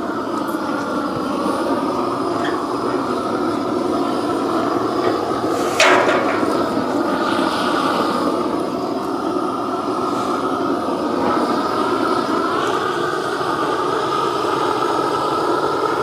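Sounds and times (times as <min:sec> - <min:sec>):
propane torch burning: 0:00.0 - 0:16.0
torch flame burst: 0:00.1 - 0:14.0.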